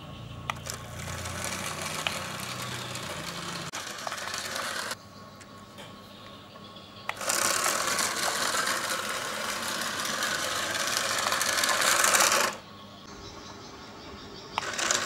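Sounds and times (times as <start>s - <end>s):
toy car motor whirring: 0.5s - 5.0s, 7.1s - 12.7s, 14.6s - 15.0s.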